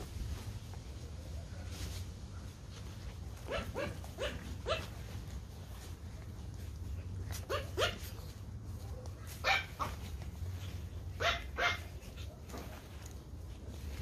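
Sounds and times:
puppy yapping: 0:03.4 - 0:05.2, 0:07.2 - 0:10.2, 0:11.1 - 0:12.7.

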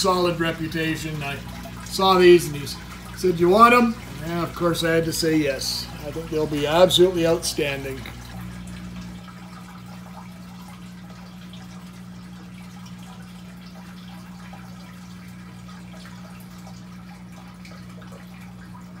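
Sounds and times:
water dripping and trickling: 0:00.0 - 0:19.0.

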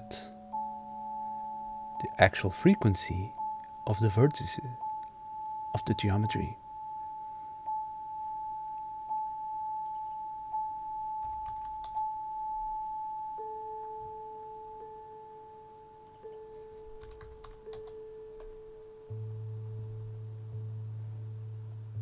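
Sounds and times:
steady pure sine tone: 0:00.0 - 0:17.0, 0:18.0 - 0:22.0
soft clicks: 0:09.8 - 0:10.2.

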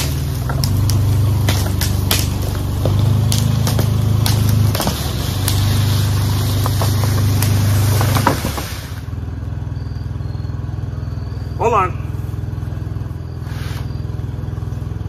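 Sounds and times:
sharp cracks: 0:00.0 - 0:09.1
vehicle engine running: 0:00.0 - 0:15.0
hiss: 0:04.5 - 0:09.2, 0:13.4 - 0:14.0.

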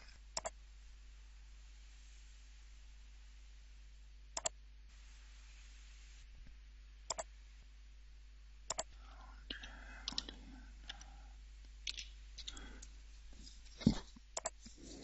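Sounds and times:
computer mouse clicks: 0:00.4 - 0:00.6, 0:04.4 - 0:04.6, 0:08.7 - 0:08.9, 0:09.5 - 0:11.1, 0:11.8 - 0:12.8, 0:14.4 - 0:14.6
keyboard keystrokes: 0:08.7 - 0:08.9.

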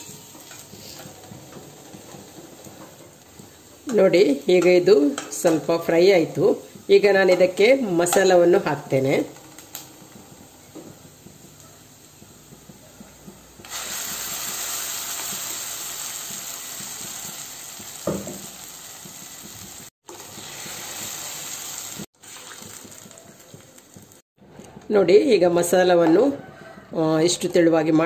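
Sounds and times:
paste sizzling in hot oil: 0:13.5 - 0:24.2.

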